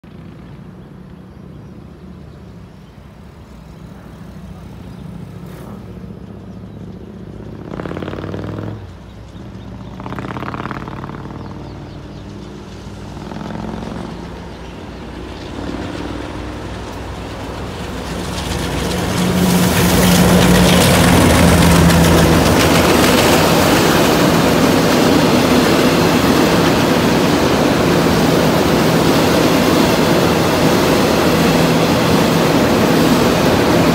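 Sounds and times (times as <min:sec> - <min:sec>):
diesel locomotive engine: 0:00.0 - 0:33.9
wagons rumbling on rails: 0:00.0 - 0:33.9.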